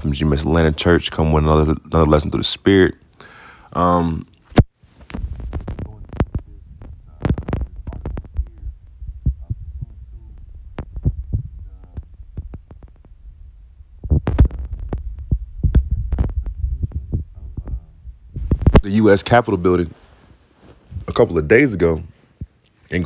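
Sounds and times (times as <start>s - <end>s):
low rumble: 5.1s - 18.8s.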